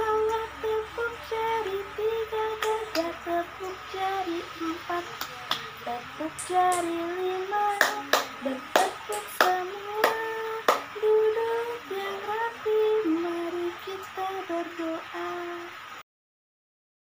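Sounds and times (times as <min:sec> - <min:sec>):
women singing: 0:00.0 - 0:15.8
sharp hand claps: 0:05.2 - 0:05.7, 0:07.7 - 0:10.9.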